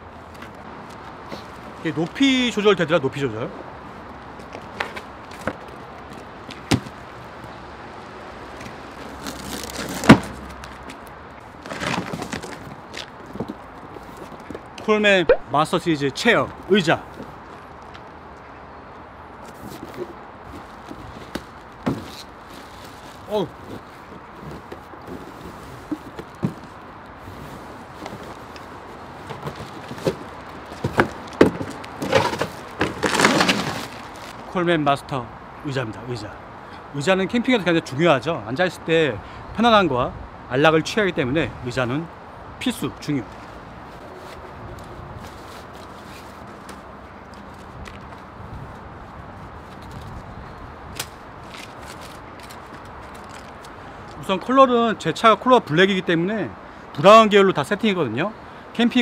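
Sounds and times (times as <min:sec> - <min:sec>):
cardboard scraping and rustling: 0:08.6 - 0:10.9, 0:11.6 - 0:14.6, 0:19.4 - 0:34.5.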